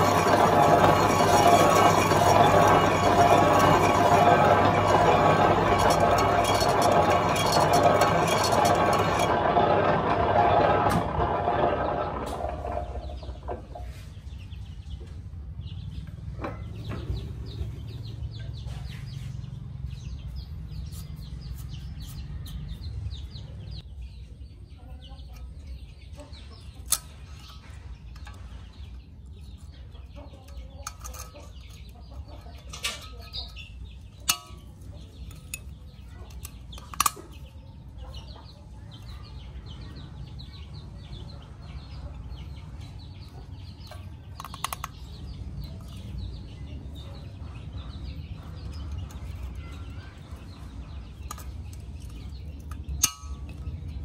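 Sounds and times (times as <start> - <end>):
low machine hum: 0.0 - 18.6
sharp metal clicks: 43.8 - 46.3.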